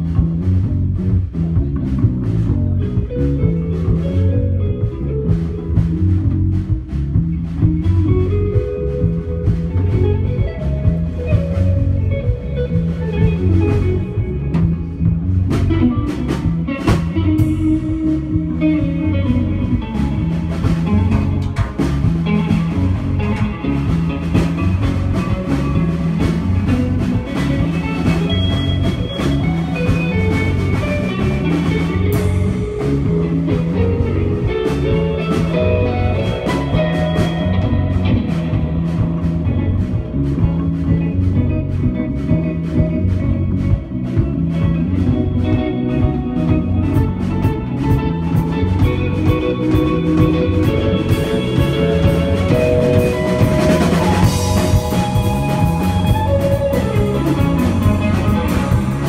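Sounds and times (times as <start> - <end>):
rock band playing: 0.0 - 59.0
repeating bass pattern: 47.4 - 59.0.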